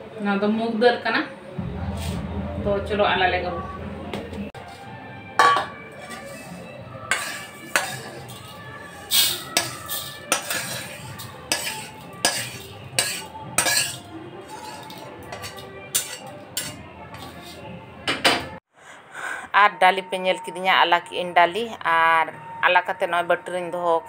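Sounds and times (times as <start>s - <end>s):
metal wok clinking with tongs: 5.4s - 6.4s, 7.1s - 17.4s.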